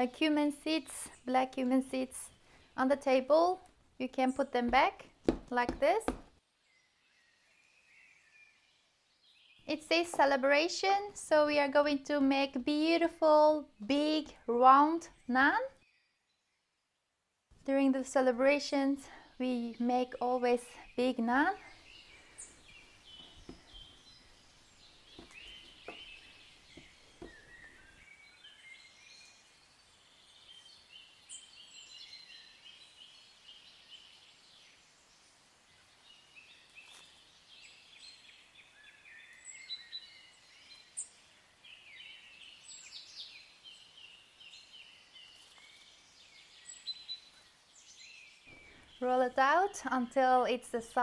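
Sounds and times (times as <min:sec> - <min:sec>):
faint birdsong: 0:00.0 - 0:51.0
rolling pin knocking on board: 0:04.7 - 0:06.3.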